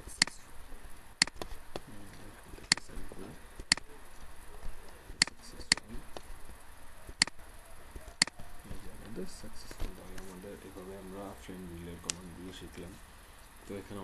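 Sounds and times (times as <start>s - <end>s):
computer mouse clicks: 7.1s - 7.4s.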